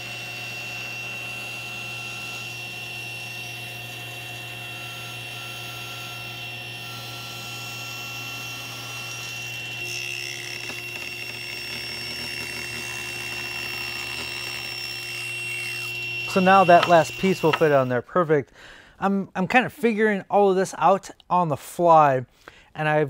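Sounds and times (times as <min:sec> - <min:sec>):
saw blade cutting wood: 0:00.0 - 0:18.0
table saw motor whine: 0:00.0 - 0:18.0.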